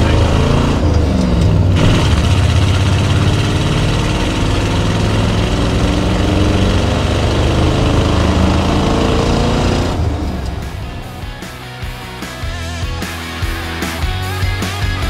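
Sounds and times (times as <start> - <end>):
wind and road noise: 0.0 - 11.8
truck engine running: 0.0 - 15.0.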